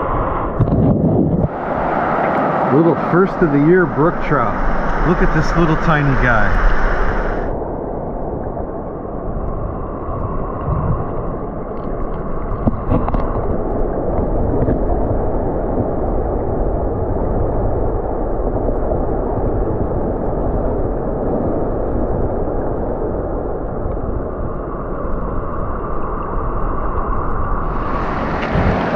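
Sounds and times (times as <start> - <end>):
stream water rushing: 1.5 - 7.5, 27.6 - 28.9
faint clicks: 9.4 - 14.8, 23.8 - 27.7.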